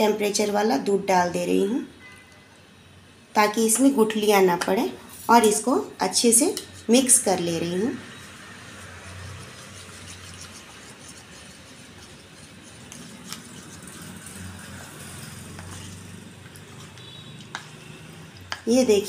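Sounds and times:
spoon scraping in ceramic bowl: 6.5s - 18.6s.

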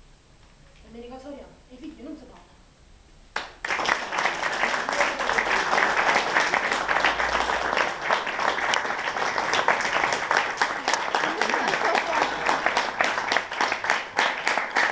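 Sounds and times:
audience applause: 3.4s - 14.9s.

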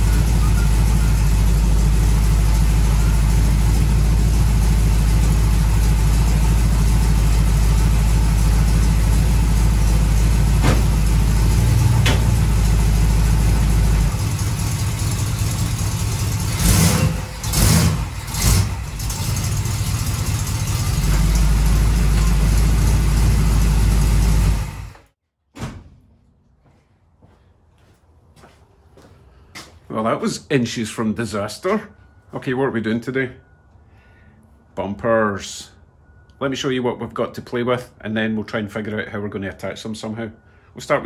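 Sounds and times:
car engine idling and revving: 0.0s - 25.1s.

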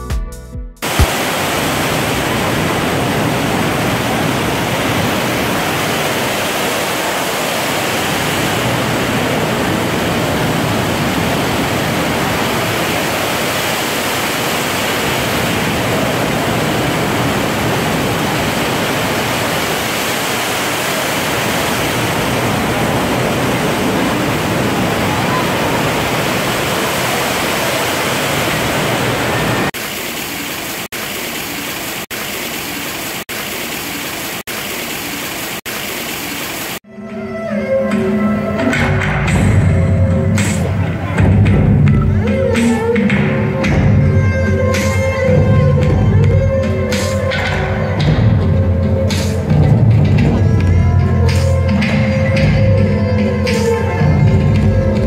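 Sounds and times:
indoor fountain water pouring: 0.9s - 36.8s.

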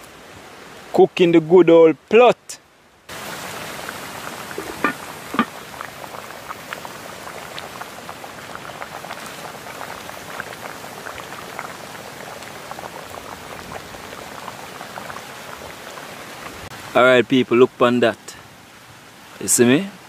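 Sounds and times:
stew bubbling at a boil: 3.1s - 17.0s.

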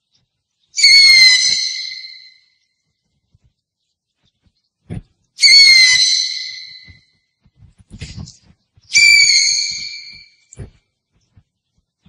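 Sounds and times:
owl screeching: 0.8s - 2.5s, 5.4s - 7.1s, 8.9s - 10.5s
soft low thump: 4.9s - 5.1s.

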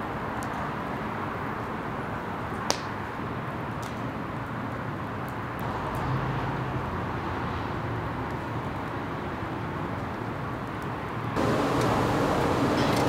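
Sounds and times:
fire burning with rushing noise: 0.0s - 13.0s
fire crackling and popping: 0.0s - 13.0s.

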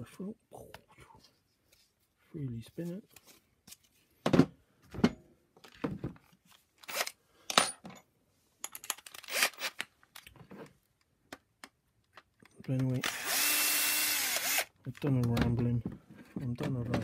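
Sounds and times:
plastic parts knocking on wood: 15.1s - 17.0s.

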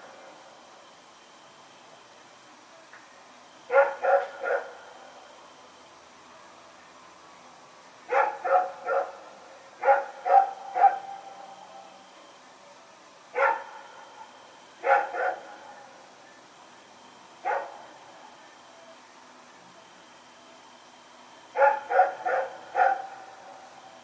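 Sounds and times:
dog barking: 3.7s - 4.8s, 8.1s - 11.2s, 13.4s - 13.9s, 14.8s - 15.6s, 17.4s - 17.9s, 21.6s - 23.3s.

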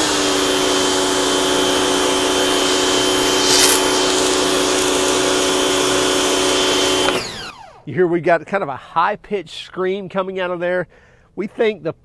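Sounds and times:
pressure washer motor and pump hum: 0.0s - 7.5s.

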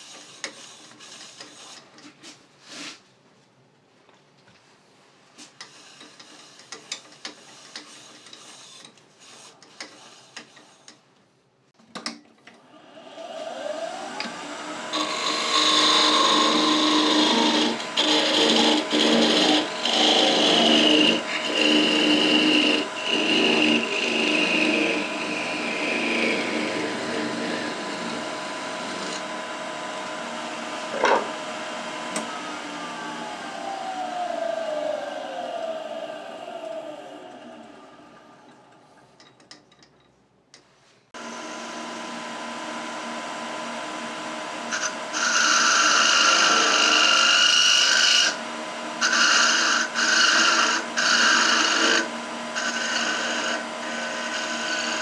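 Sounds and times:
wood lathe scraping cut: 0.0s - 1.8s, 12.8s - 38.7s, 43.3s - 55.0s.

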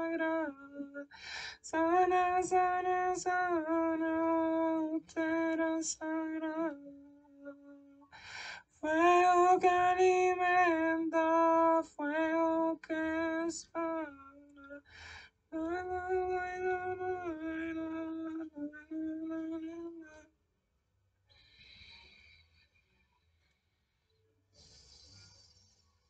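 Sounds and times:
woman singing slow melody: 0.0s - 8.2s, 8.8s - 14.9s, 15.5s - 20.3s.

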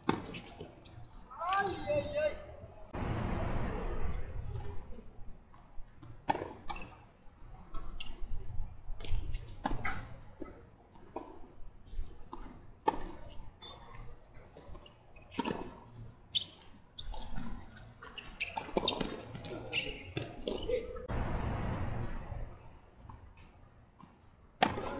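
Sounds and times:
racket striking tennis ball: 24.6s - 24.9s.

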